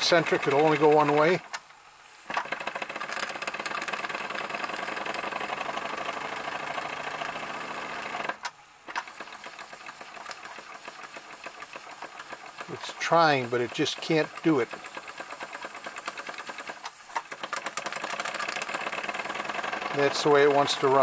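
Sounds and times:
toy steam engine chuffing: 0.0 - 21.0.

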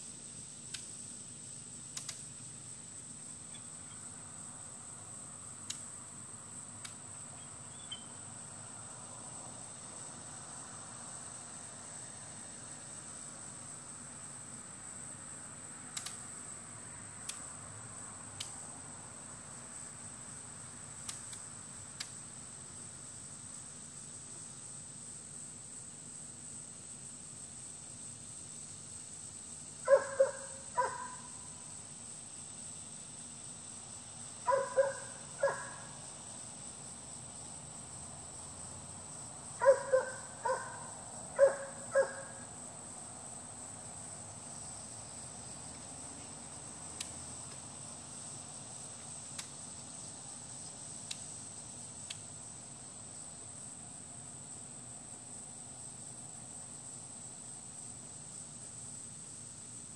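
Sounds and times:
high-pitched insect hum: 0.0 - 59.9
dog barking: 29.9 - 31.4, 34.4 - 35.9, 39.6 - 42.4.

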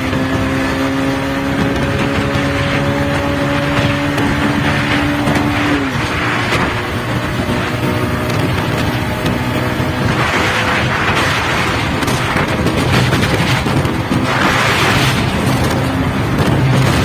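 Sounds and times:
motorcycle engine at speed: 0.0 - 17.0
wind buffeting microphone: 0.0 - 17.0.

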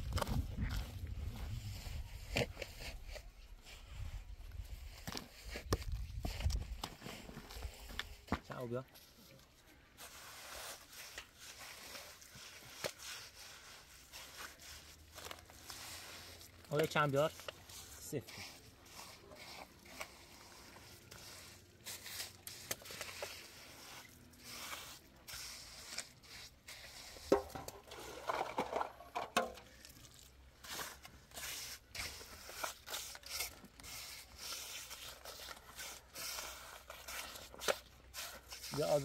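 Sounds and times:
scraping and clicking of handling: 27.2 - 30.0.

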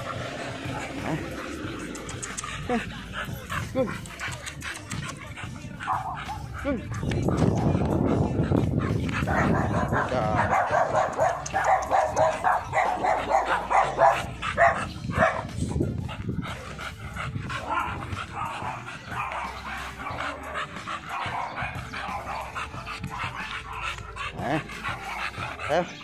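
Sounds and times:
dog barking: 5.4 - 8.3, 8.9 - 15.6, 17.6 - 26.0.

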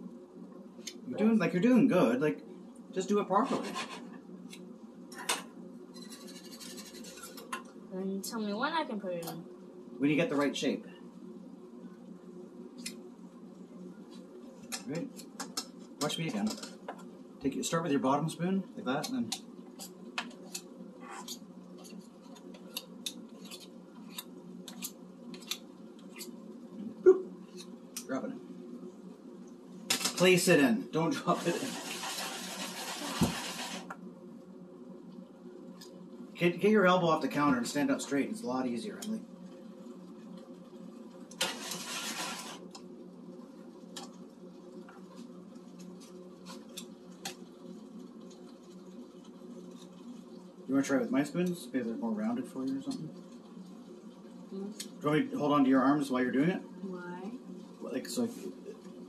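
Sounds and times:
steady low hum: 0.0 - 59.0
spoons scraping metal bowl: 3.4 - 4.2, 5.9 - 7.6, 31.1 - 33.9, 41.4 - 42.7.

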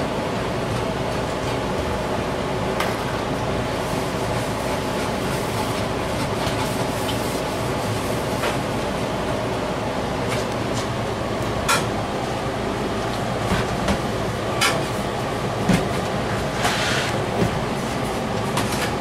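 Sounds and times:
machinery hum and drone: 0.0 - 19.0.

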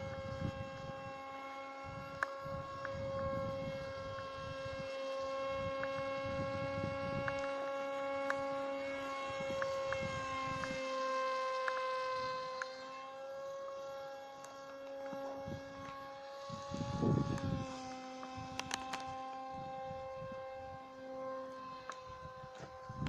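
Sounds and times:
wind buffeting microphone: 0.0 - 11.4, 15.0 - 21.3, 22.0 - 23.0
electric motor propeller whine: 0.0 - 23.0.

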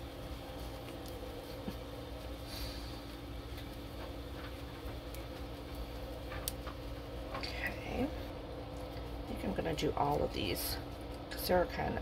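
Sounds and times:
steady low hum: 0.0 - 12.0
bread tearing crackles: 0.2 - 9.3.

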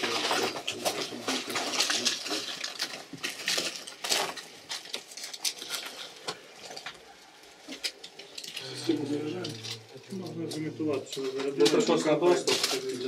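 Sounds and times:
resuscitation bag being squeezed: 0.0 - 6.9
medical equipment clicking and rustling: 0.0 - 13.0.

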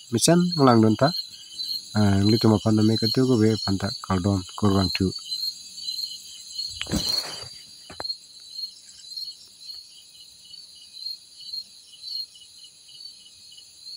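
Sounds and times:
insects chirring: 0.0 - 13.9
whoosh on microphone: 6.7 - 7.6.

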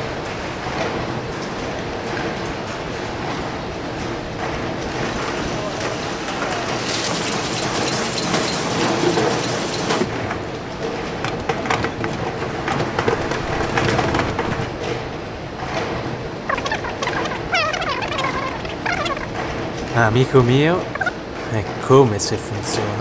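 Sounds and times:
loud hiss: 6.2 - 10.1.

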